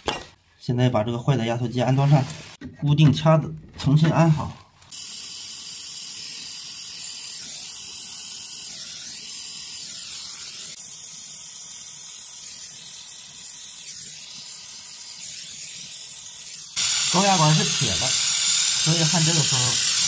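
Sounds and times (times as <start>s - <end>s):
gas torch flame hissing: 4.9s - 20.0s.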